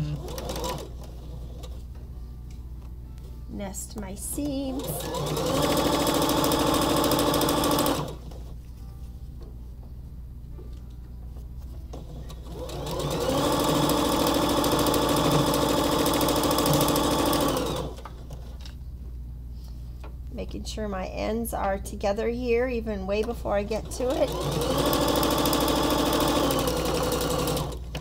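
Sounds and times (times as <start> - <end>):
electric sewing machine stitching: 0.0 - 1.7, 4.5 - 8.3, 12.0 - 18.2, 23.6 - 28.0.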